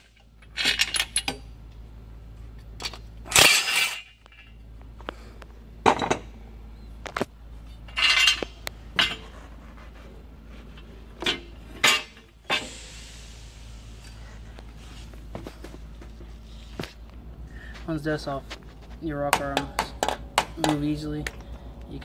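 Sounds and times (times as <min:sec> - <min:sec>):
steel parts clanking: 0:00.1 - 0:01.5, 0:02.7 - 0:04.7, 0:07.6 - 0:09.5, 0:10.6 - 0:14.2.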